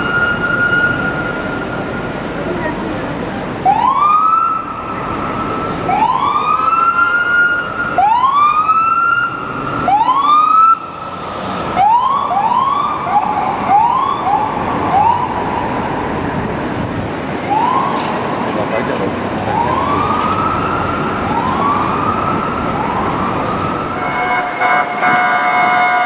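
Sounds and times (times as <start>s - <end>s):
city traffic hum: 0.0s - 26.0s
police siren whoops: 3.7s - 4.9s, 5.9s - 10.8s, 11.8s - 15.4s, 19.5s - 24.1s.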